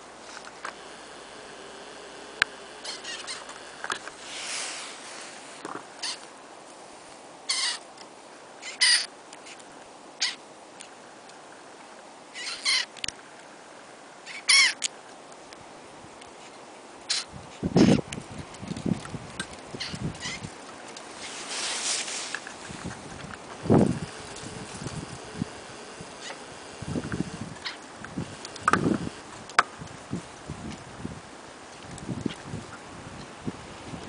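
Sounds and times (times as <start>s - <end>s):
wings fluttering: 0.2s - 6.3s, 17.1s - 29.6s
bird calls: 1.3s - 4.2s, 23.9s - 29.0s.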